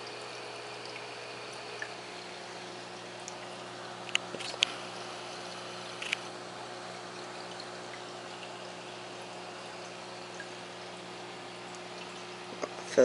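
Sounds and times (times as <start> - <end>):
pump humming: 0.0 - 13.0
water trickling into tank: 0.0 - 13.0
sharp clicks: 6.0 - 6.3.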